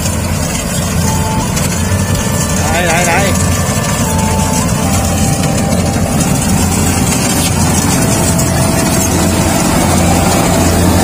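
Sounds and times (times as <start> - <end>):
combine harvester engine hum: 0.0 - 11.0.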